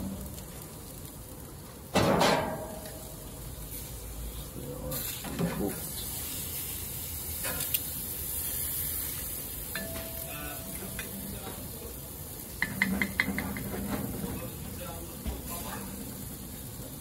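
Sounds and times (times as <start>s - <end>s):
burgers sizzling on a grill: 0.0s - 17.0s.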